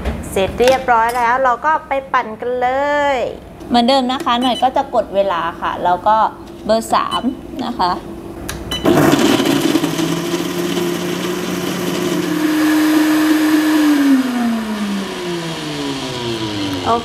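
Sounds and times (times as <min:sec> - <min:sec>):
blender motor blending ice: 0:08.8 - 0:17.0.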